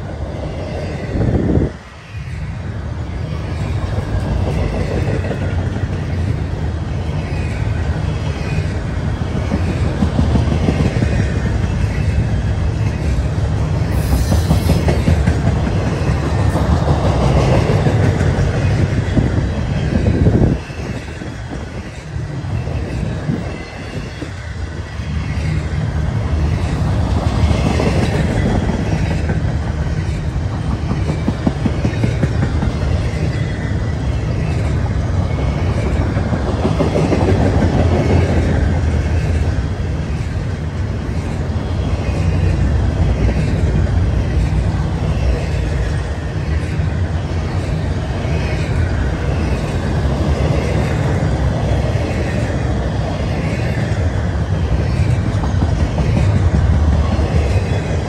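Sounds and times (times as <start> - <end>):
freight train wheels rumbling on rails: 0.0 - 58.0
rhythmic clickety-clack: 9.3 - 12.0, 12.9 - 19.4, 26.6 - 33.5, 34.4 - 39.6, 54.7 - 58.0.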